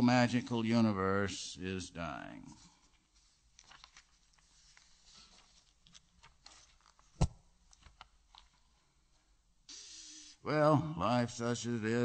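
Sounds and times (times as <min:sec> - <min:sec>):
faint rustles and clicks: 0:02.5 - 0:09.3.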